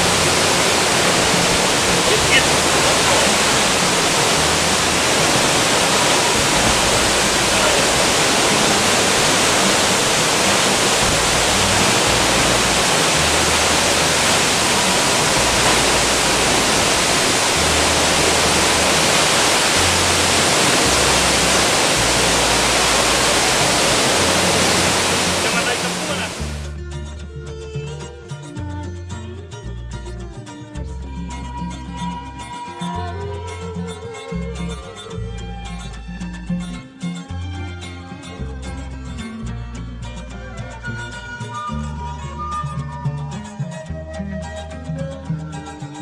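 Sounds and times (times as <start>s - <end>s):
waterfall rushing: 0.0s - 26.7s.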